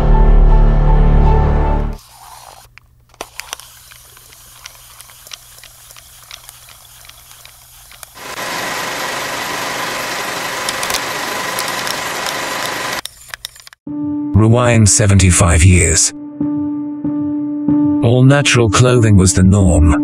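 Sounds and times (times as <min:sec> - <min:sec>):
film projector whirring: 0:02.0 - 0:13.8.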